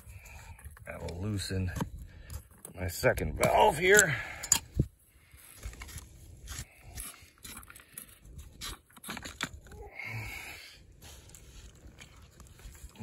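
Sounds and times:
plastic parts clicking and scraping: 5.5 - 9.8.

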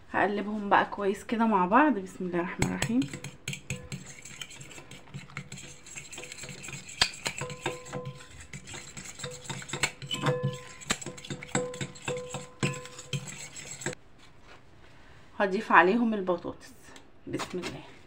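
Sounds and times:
fork beating batter in glass bowl: 2.6 - 14.0.

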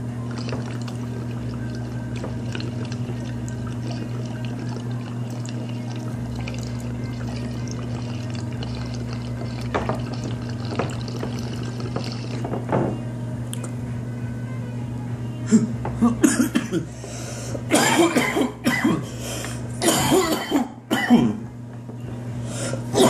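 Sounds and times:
water bubbling in glass pipe: 0.0 - 12.9
low hum: 0.0 - 17.8.

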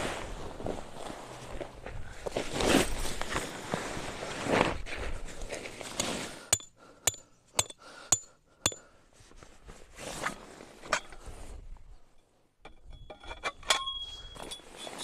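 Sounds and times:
hammer striking metal stake: 6.5 - 8.8.

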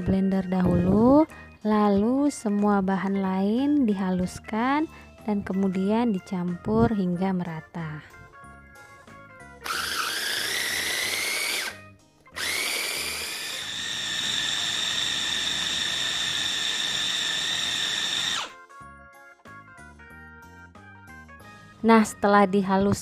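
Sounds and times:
light background music: 0.0 - 23.0
food chopper motor whining: 9.6 - 18.6.

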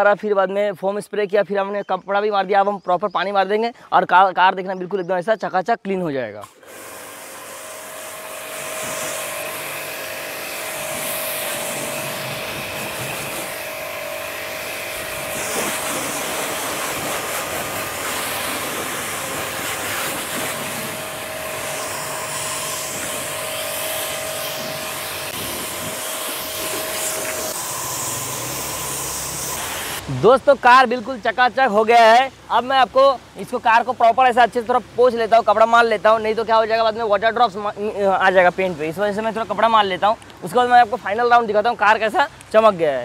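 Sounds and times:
pressure washer motor whine: 6.4 - 30.1
water jet hissing on car: 6.5 - 30.2.

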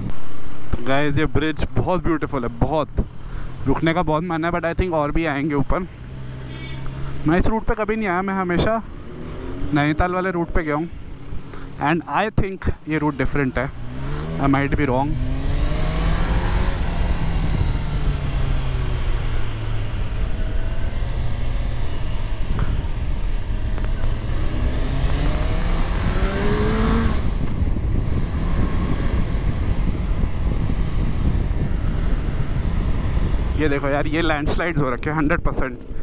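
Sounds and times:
wind noise on microphone: 0.0 - 4.9, 13.7 - 36.0
motorcycle engine revving: 0.0 - 11.9, 13.0 - 34.9.

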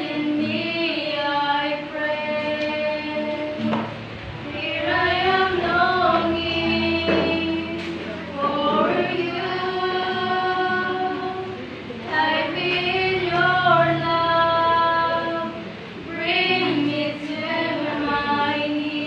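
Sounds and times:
girls singing together: 0.0 - 19.0.

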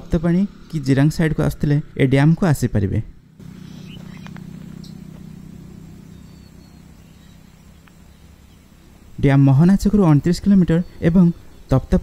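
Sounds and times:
motor vehicle humming: 0.0 - 12.0.

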